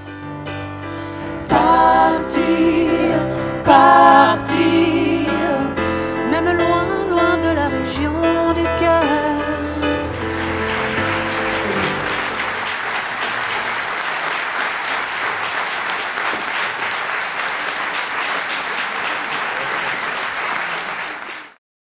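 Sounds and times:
music: 0.0 - 13.0
audience applauding: 10.0 - 21.6.

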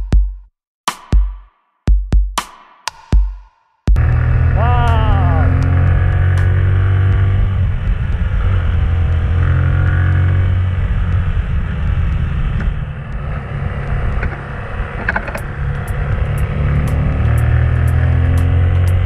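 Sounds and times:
sharp clicks: 4.0 - 6.6
motorcycle engine running: 4.0 - 19.0.

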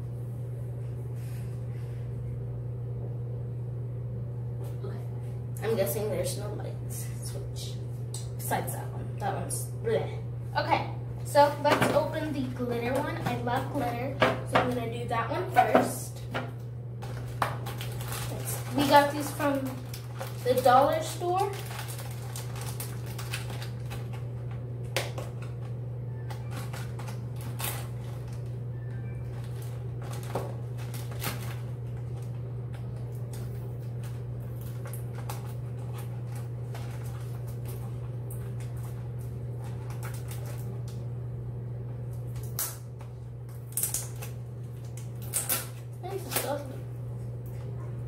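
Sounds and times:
low hum: 0.0 - 48.0
plastic packet crinkling: 17.0 - 41.0.

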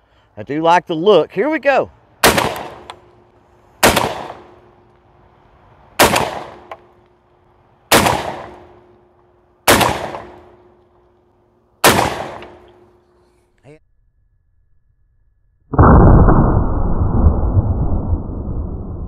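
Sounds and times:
shotgun shots: 2.2 - 3.0, 3.8 - 4.6, 6.0 - 6.9, 7.9 - 8.8, 9.6 - 10.7, 11.8 - 12.9.

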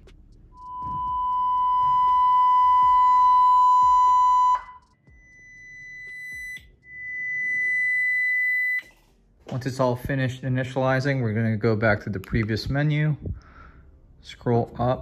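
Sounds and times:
steady electronic motor tone: 0.5 - 8.9.

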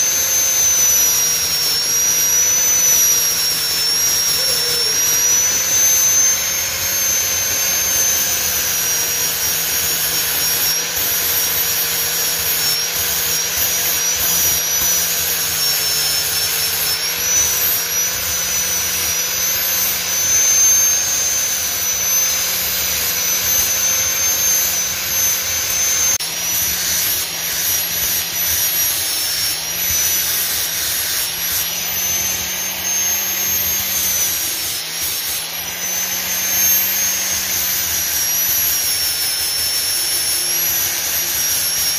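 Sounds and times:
angle grinder grinding steel: 0.0 - 41.9.

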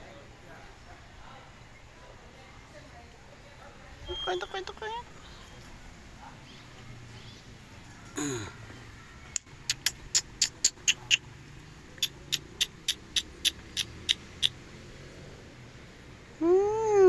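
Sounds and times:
squeaky lip kissing sounds: 9.6 - 11.3, 12.0 - 14.6.

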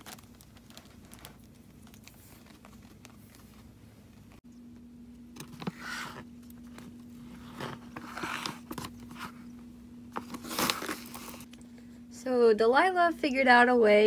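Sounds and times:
plastic bag rustling and crinkling: 0.0 - 4.4, 10.1 - 11.5.

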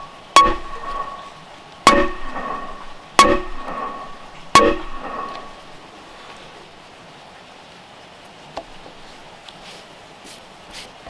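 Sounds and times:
hammer blows on wood: 0.0 - 1.3, 1.9 - 5.6.

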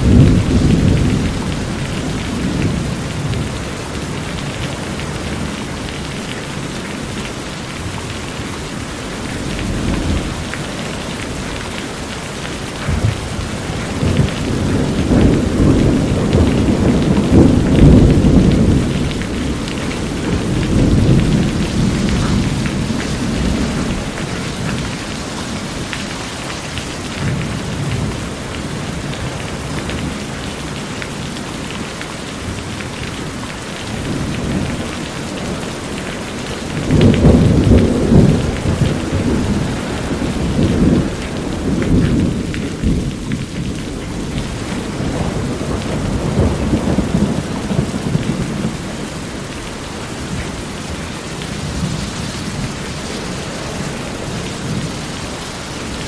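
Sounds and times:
thunder rumbling: 0.0 - 30.8, 33.9 - 56.0
rain on a metal roof: 0.0 - 56.0.

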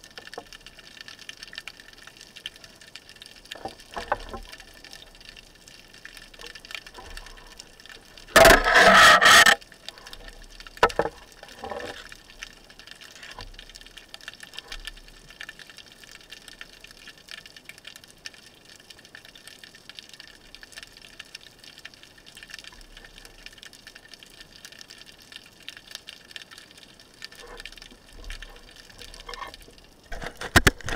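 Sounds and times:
small clicks underwater: 0.0 - 30.9
rush of water and air bubbles: 2.1 - 15.6, 26.8 - 30.9.

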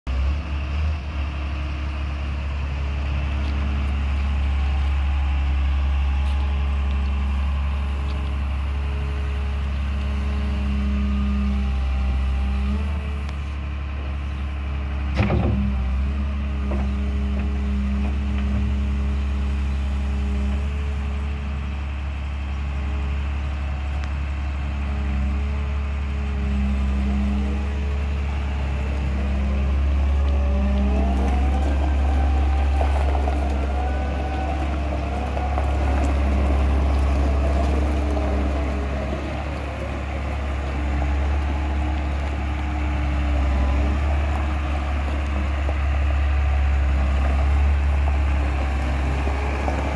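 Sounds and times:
diesel engine running: 0.1 - 49.9.

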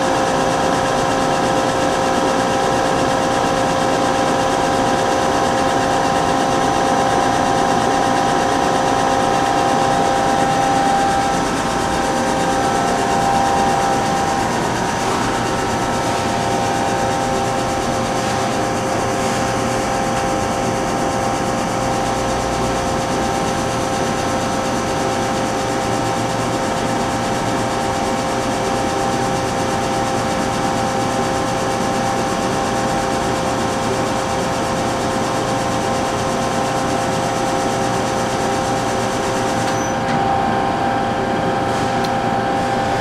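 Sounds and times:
lathe mechanical hum: 0.0 - 43.0
steady whining tones: 3.5 - 22.1.

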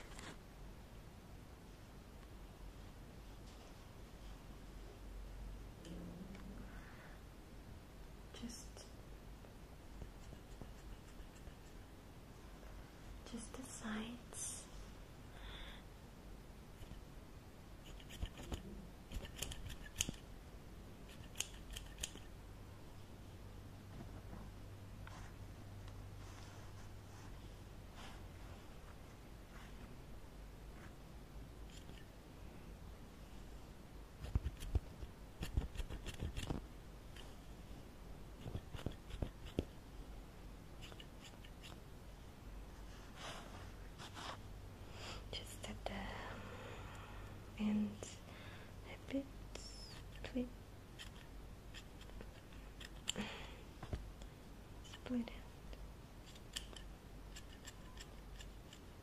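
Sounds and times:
scissors snipping: 17.9 - 20.2, 21.1 - 22.3, 56.2 - 58.8.

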